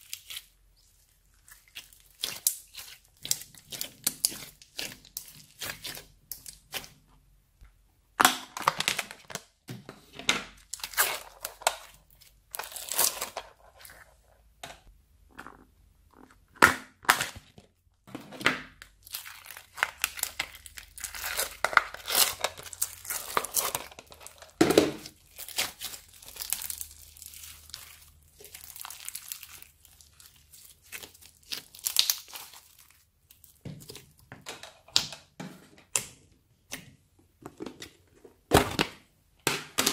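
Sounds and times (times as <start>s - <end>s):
slime crackling and popping: 1.4s - 7.0s, 18.8s - 34.2s.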